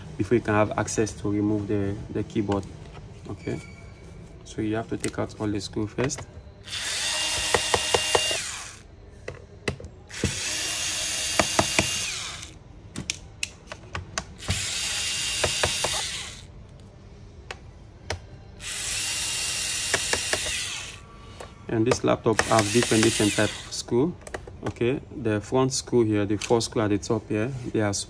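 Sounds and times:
electric screwdriver whine: 6.7 - 8.8, 10.1 - 12.6, 14.4 - 16.5, 18.6 - 21.0, 22.4 - 23.7.

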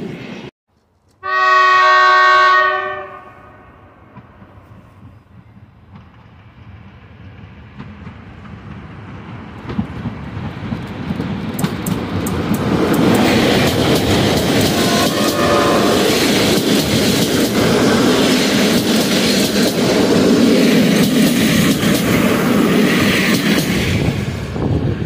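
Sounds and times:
train passing with rumble: 0.0 - 0.5, 1.4 - 25.0
wheels clattering over rail joints: 9.6 - 23.8.

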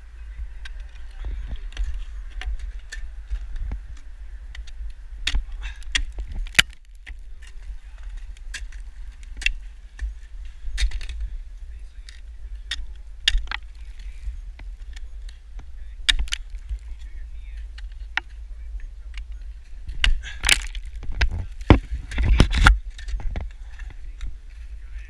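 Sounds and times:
ice axe striking ice: 4.7 - 10.1, 12.7 - 14.1, 16.0 - 17.0, 19.9 - 23.4.

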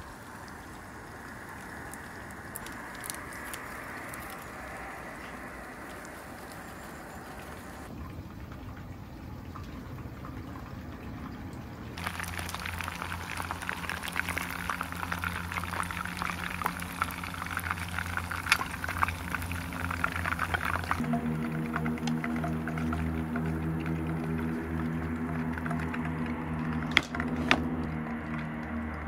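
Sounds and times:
chicken frying in hot oil: 0.0 - 29.0.

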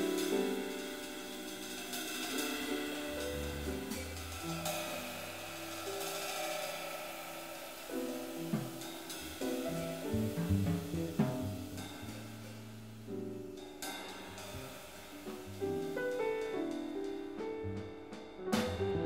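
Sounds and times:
cymbals and light drums: 0.0 - 19.0
piano chords and melody: 0.0 - 19.0
walking bass: 9.8 - 13.0.

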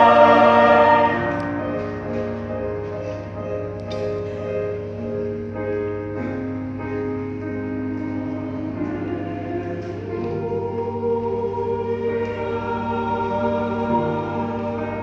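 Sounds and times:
choir singing a hymn: 0.0 - 3.7, 7.9 - 15.0
piano accompaniment: 0.0 - 15.0.

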